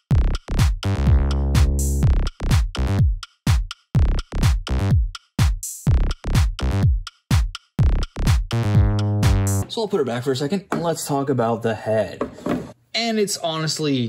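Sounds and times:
punchy kick drums: 0.0 - 9.6
electronic music: 0.0 - 9.7
bass and synth chord: 0.2 - 3.0, 7.9 - 9.6.

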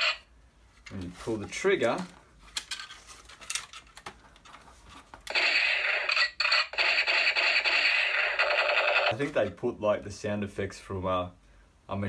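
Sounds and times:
electronic machine-gun sound effect: 5.3 - 9.1.

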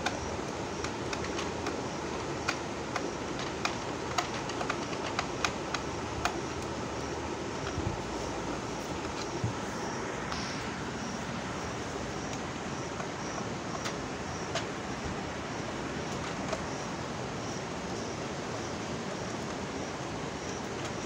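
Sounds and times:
screwdriver clicking on screws: 0.0 - 7.8
steady background hiss: 0.0 - 21.0.

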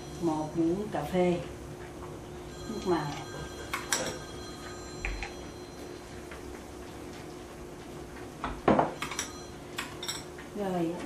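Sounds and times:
faint hum: 0.0 - 11.0
glass clinking: 2.7 - 5.9, 8.7 - 10.3.

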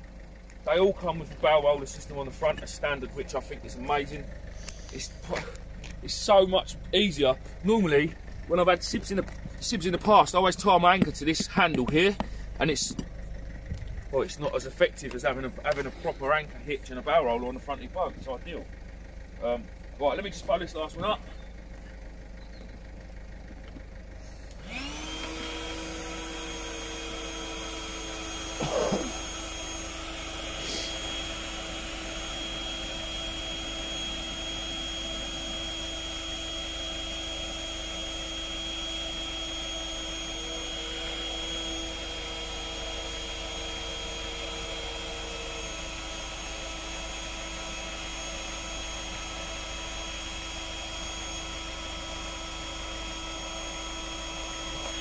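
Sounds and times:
electric air pump humming: 24.4 - 55.0.

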